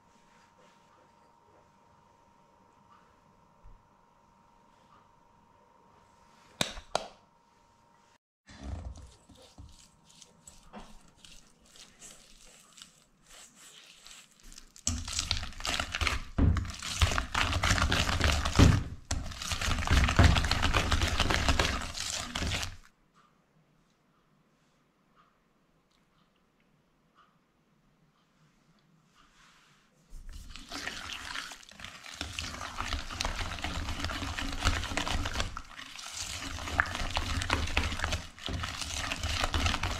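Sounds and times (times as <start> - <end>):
whisk beating in metal bowl: 9.1 - 22.9, 30.4 - 39.9.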